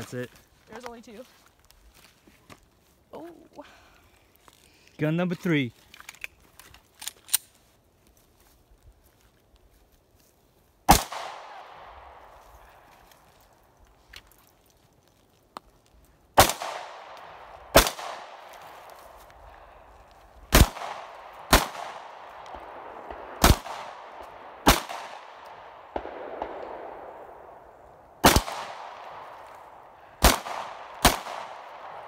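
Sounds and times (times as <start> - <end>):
pistol shots with echo: 10.9 - 11.9, 16.4 - 18.5, 20.5 - 27.5, 28.2 - 29.4, 30.2 - 32.0.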